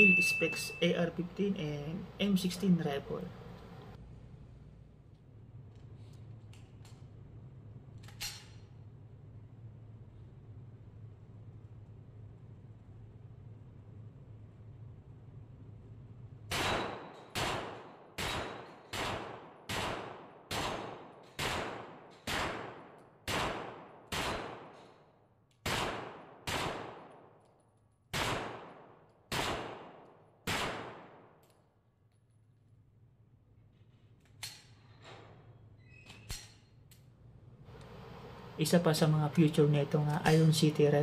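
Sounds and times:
gunshots echoing indoors: 16.4 - 31.9.

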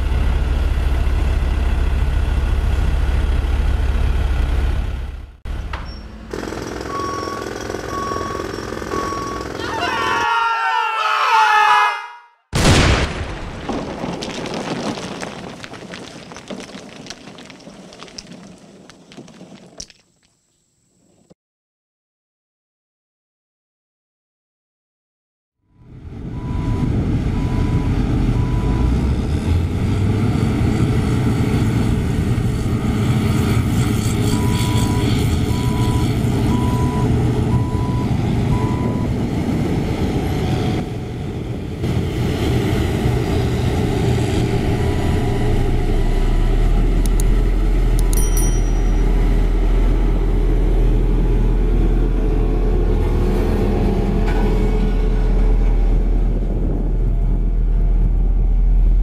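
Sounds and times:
diesel engine running: 0.0 - 9.6, 25.9 - 59.0
reversing alarm beeping: 5.9 - 9.7, 34.3 - 39.2
deep low rumble: 49.2 - 59.0.

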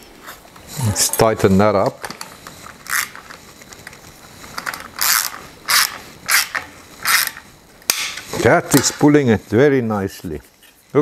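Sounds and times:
socket ratchet clicking: 4.6 - 7.4.

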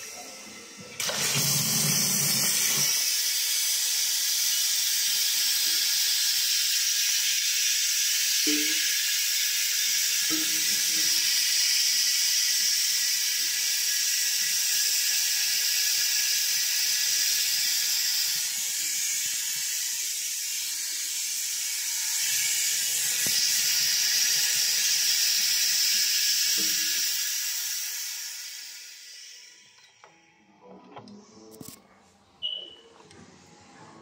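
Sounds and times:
pressurized gas hissing out: 22.2 - 29.4.

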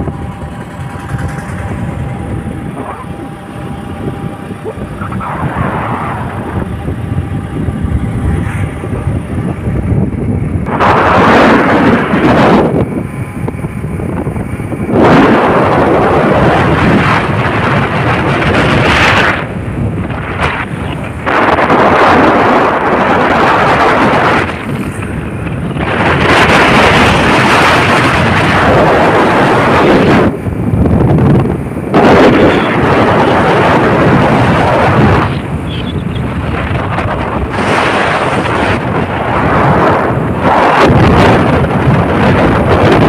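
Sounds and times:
wind buffeting microphone: 0.0 - 43.0.

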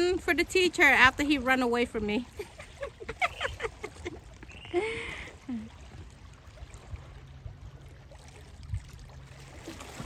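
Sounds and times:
water lapping against rocks: 0.0 - 10.0
wind rumble on microphone: 5.8 - 10.0.

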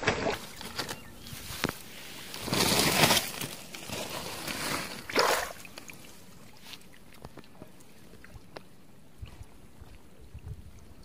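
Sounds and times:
rustling and crinkling handling noise: 0.0 - 7.7.

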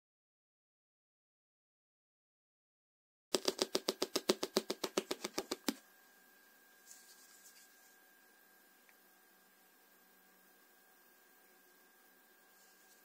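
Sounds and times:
rapid sharp clicks: 3.3 - 5.8.

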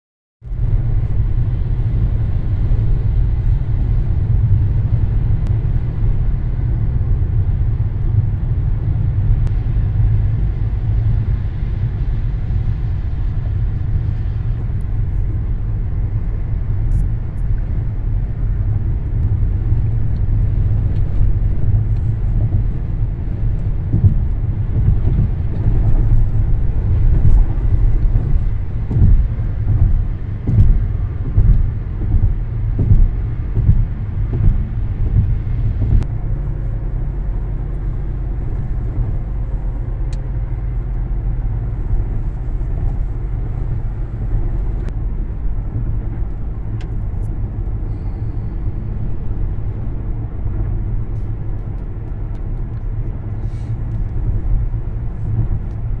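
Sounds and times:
car road noise rumble: 0.4 - 56.0.

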